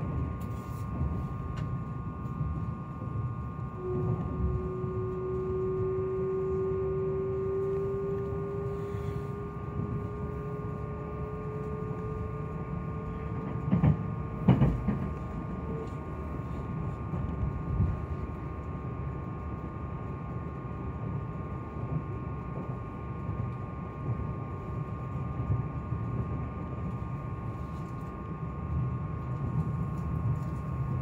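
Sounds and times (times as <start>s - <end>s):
train motor whine: 0.0s - 20.6s
train rumble: 0.0s - 31.0s.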